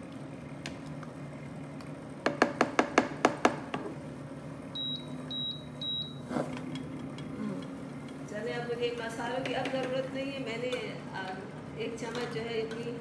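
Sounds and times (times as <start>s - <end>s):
short high beeps: 4.8s - 6.2s.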